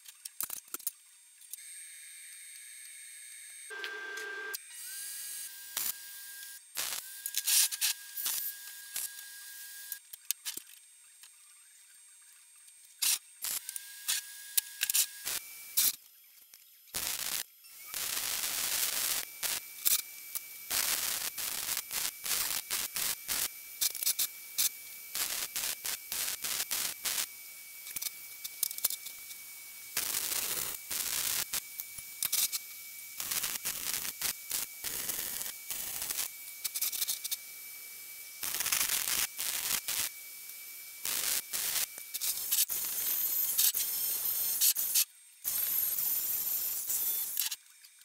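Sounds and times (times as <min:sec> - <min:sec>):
welding arc crackling: 0:05.7 - 0:10.0, 0:13.0 - 0:16.0, 0:16.9 - 0:37.5, 0:38.4 - 0:47.5.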